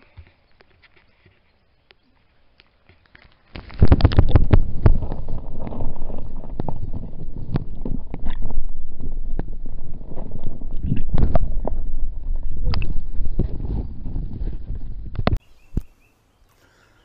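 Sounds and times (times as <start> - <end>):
muffled underwater rushing: 3.7 - 15.4
clicks and thumps on camera housing: 12.6 - 15.9.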